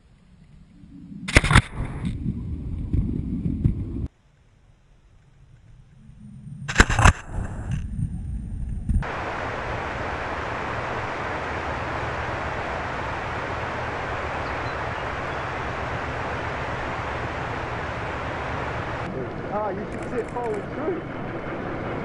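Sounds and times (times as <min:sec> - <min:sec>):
snow plow train rumble: 0:09.0 - 0:22.0.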